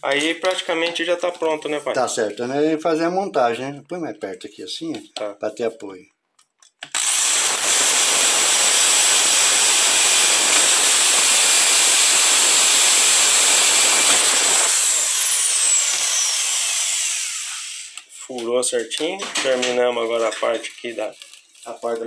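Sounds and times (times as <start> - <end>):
drill bit cutting plastic pipe: 6.8 - 18.1
electric drill motor whine: 6.9 - 18.0.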